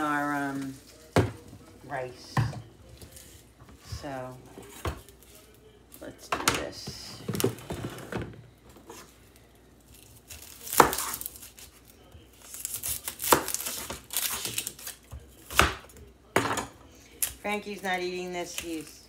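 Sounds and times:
onion skin rustling: 2.8s - 6.2s, 8.6s - 16.0s.

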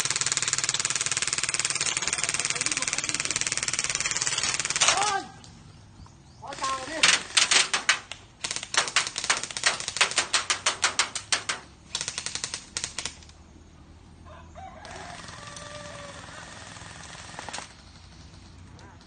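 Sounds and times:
airsoft gun shots: 6.5s - 13.2s.

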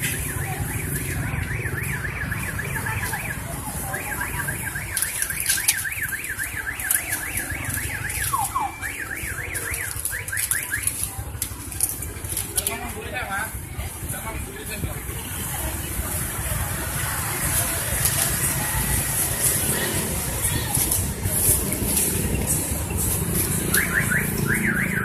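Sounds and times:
electronic alarm siren warbling: 23.6s - 25.0s.

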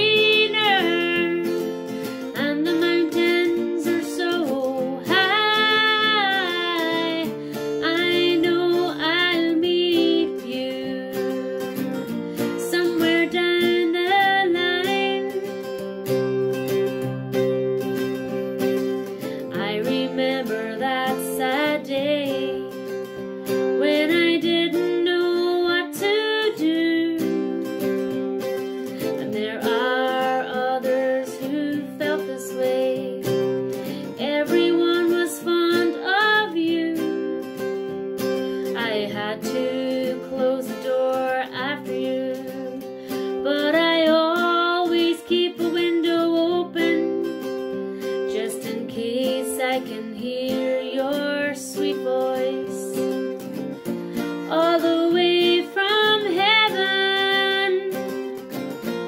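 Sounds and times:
acoustic guitar: 0.0s - 59.0s
woman singing: 0.0s - 59.0s.

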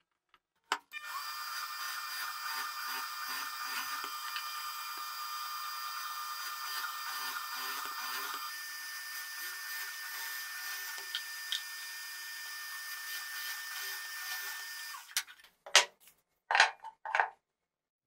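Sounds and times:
drill press boring into wood: 0.9s - 15.2s.

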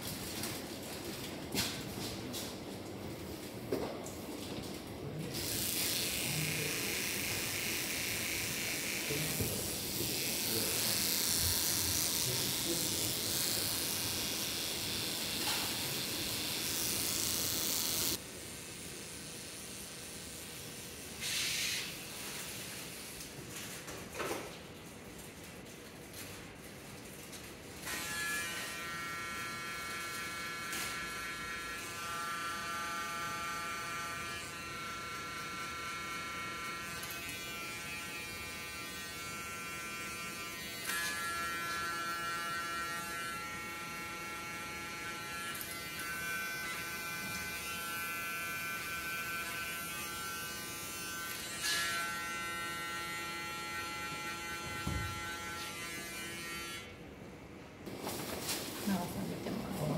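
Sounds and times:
electric hair clippers humming: 5.3s - 18.2s, 27.8s - 57.0s.

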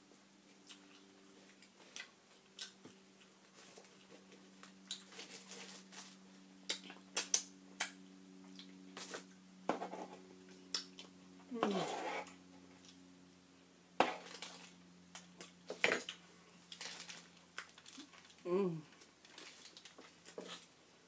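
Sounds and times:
steady low hum: 0.0s - 21.0s
chewing: 0.5s - 6.1s
crumb crackles: 0.5s - 9.3s, 14.0s - 20.8s
bread tearing: 16.8s - 18.4s.

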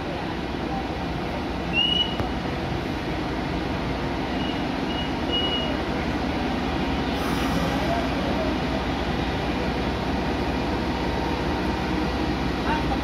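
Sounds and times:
diesel locomotive rumbling: 0.0s - 13.0s.

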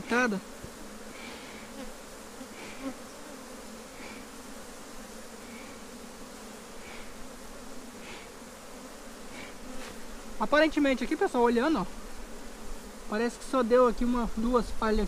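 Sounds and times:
honeybees buzzing: 0.0s - 15.0s
bellows smoker puffing: 0.6s - 10.4s.

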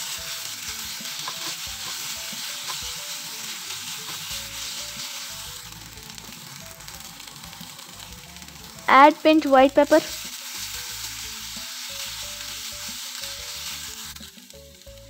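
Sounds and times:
chicken sizzling in frying pan: 0.0s - 15.0s
spatula scraping and tapping pan: 0.6s - 5.3s.

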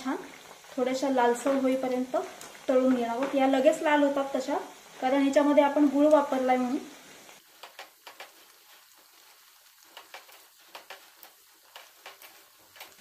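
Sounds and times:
dough frying in hot oil: 0.0s - 13.0s.

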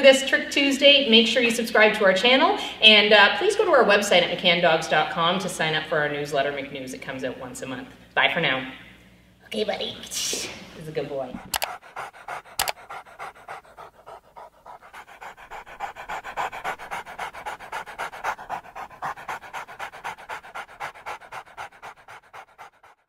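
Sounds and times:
dog panting: 11.0s - 23.0s
sharp click: 11.5s - 11.7s.

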